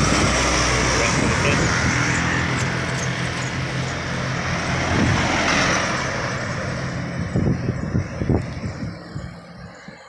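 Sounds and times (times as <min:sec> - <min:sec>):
diesel trucks driving past: 0:00.0 - 0:10.0
tyre and road noise: 0:00.0 - 0:10.0.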